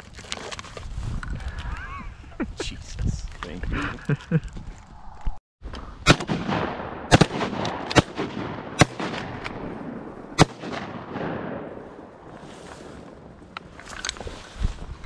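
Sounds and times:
shotgun shots echoing: 6.0s - 11.8s.

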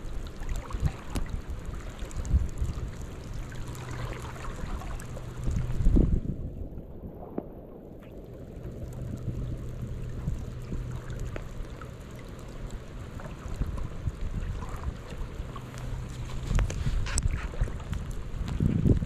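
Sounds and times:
faint ticks: 0.0s - 6.0s, 7.4s - 19.0s
river water flowing: 0.0s - 6.1s
low steady rumble: 0.0s - 19.0s.

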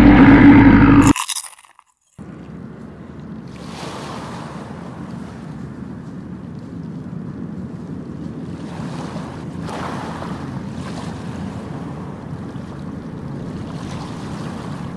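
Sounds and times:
low rushing noise: 0.0s - 1.2s.

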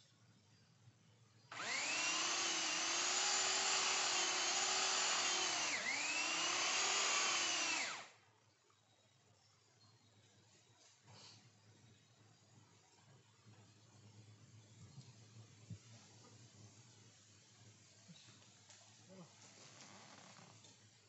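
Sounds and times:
chainsaw cutting tree trunk: 1.5s - 8.1s.

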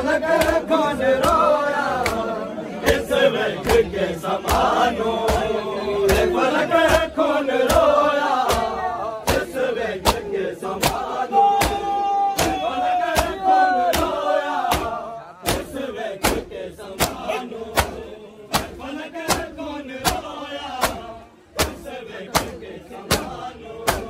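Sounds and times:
crowd chanting and calling out: 0.0s - 24.0s
hands beating chests: 3.6s - 24.0s.

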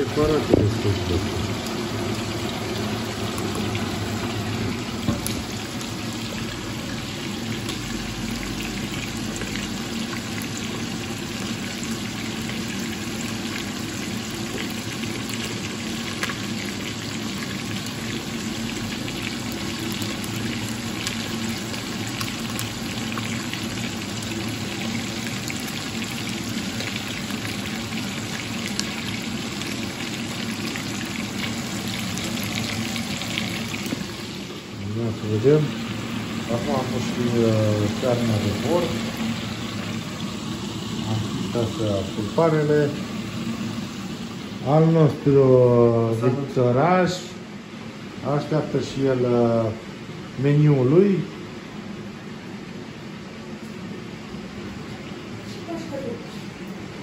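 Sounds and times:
pot boiling and bubbling: 0.0s - 57.0s.

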